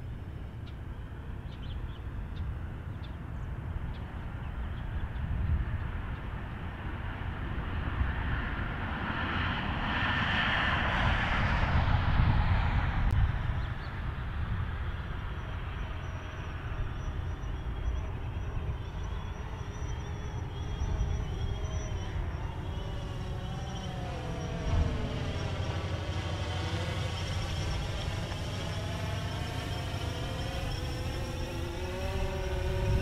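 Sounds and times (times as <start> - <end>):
wind rumble on microphone: 0.0 - 33.0
drone propellers whining: 14.8 - 33.0.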